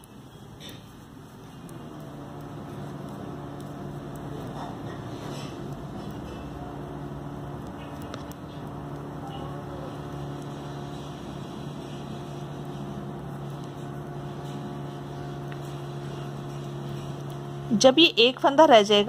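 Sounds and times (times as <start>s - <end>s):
faint clicks: 0.0s - 10.9s
electrical hum: 0.0s - 19.0s.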